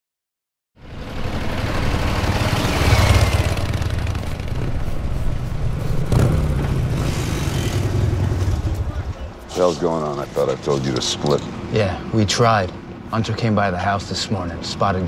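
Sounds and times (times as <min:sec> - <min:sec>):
motorcycle engine rumbling: 0:00.8 - 0:09.4.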